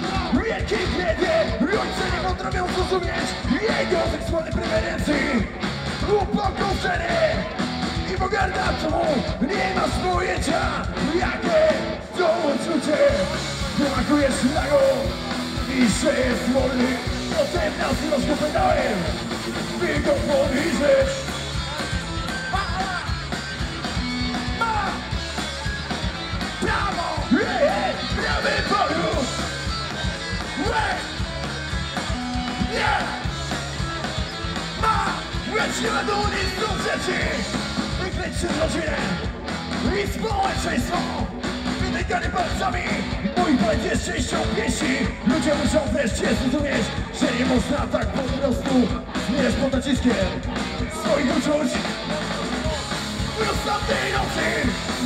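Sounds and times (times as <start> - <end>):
person singing: 0.0 - 21.4
bass guitar: 0.0 - 55.0
drums: 0.0 - 55.0.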